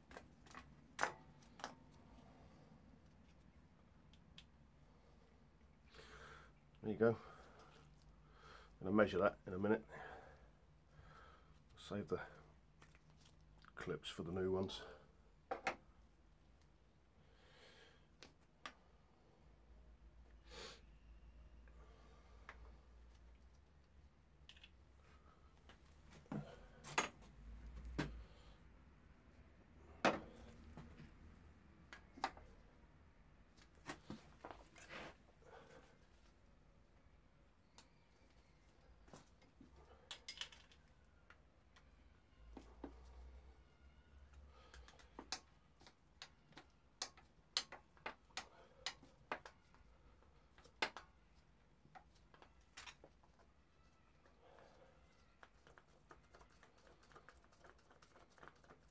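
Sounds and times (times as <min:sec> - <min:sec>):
tools clicking and tapping: 0:44.7 - 0:49.6, 0:50.6 - 0:51.1.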